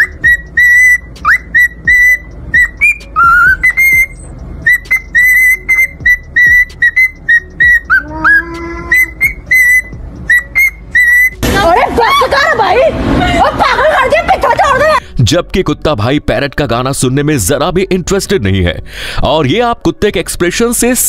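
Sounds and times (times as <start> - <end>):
cockatiel whistling: 0.0 - 11.4
women's voices: 11.4 - 15.0.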